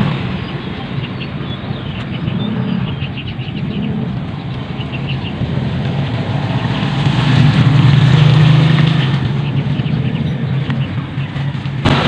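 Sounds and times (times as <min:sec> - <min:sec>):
motor engine droning: 0:00.0 - 0:12.0.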